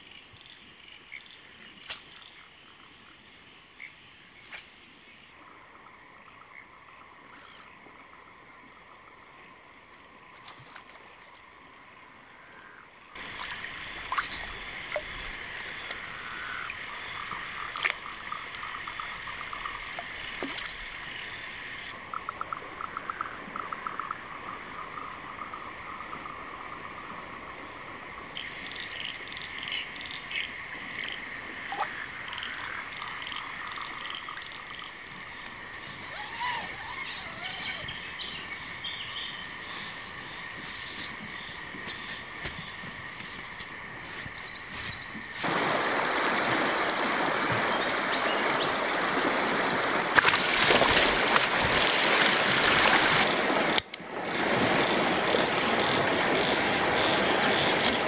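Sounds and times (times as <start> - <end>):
frogs calling: 0.0 - 45.4.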